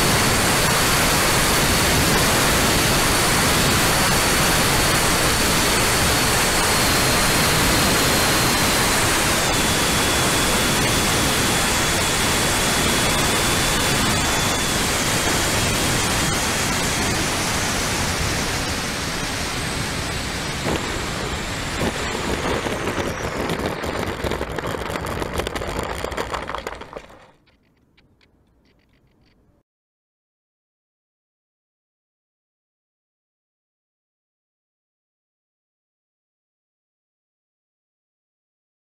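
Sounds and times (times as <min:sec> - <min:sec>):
electric ducted fans rushing: 0:00.0 - 0:27.4
crackles: 0:20.5 - 0:29.4.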